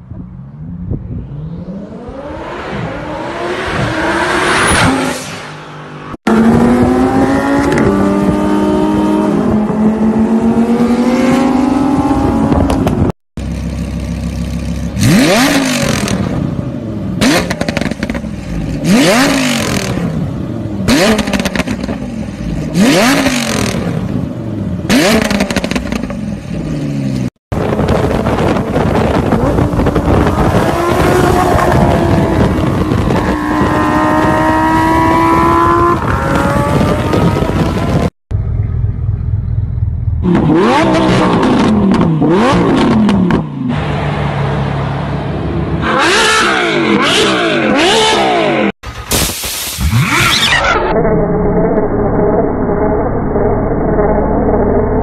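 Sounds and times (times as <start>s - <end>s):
engine revving: 0.9s - 13.0s, 14.7s - 16.5s, 17.2s - 24.2s, 24.9s - 26.2s, 26.9s - 38.2s, 40.2s - 48.8s.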